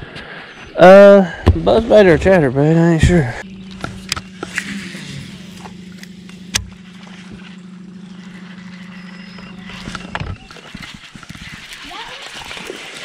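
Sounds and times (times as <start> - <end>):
electric trolling motor humming: 1.8 - 13.0.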